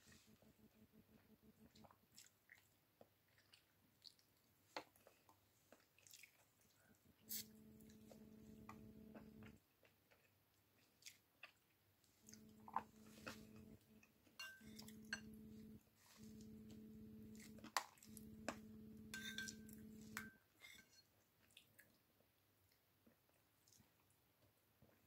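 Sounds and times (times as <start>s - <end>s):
low hum: 0.0s - 1.8s, 7.2s - 9.6s, 12.3s - 20.3s
chewing and lip smacks: 1.6s - 7.0s
metal spoon clinking on bowl: 14.4s - 15.5s, 18.5s - 21.0s.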